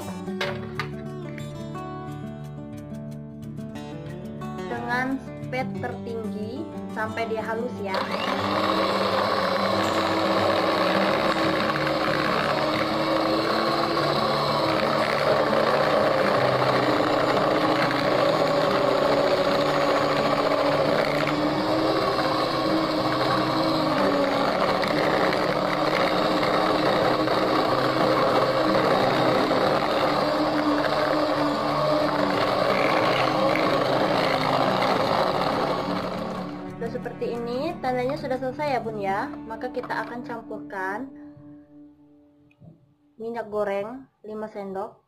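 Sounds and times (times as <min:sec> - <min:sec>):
electric hand mixer whirring: 0:07.9 - 0:37.2.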